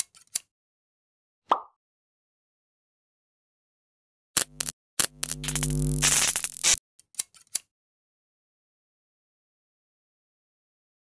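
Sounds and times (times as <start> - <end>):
buzzy tone with hiss: 4.4 - 6.8.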